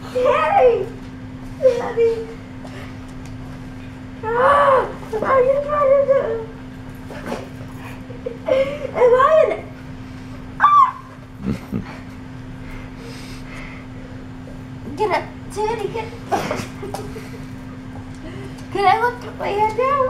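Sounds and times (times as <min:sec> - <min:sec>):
boy squealing: 0:10.6 - 0:11.1.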